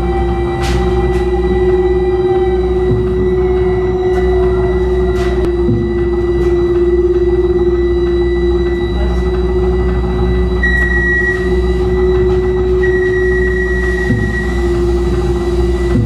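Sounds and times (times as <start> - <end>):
high whine: 0.0 - 16.0
mechanical hum: 0.0 - 16.0.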